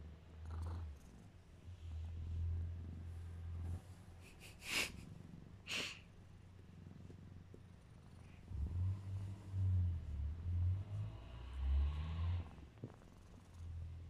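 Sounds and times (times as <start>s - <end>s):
cat purring: 0.0s - 14.0s
cat hissing: 4.3s - 5.0s, 5.6s - 6.1s.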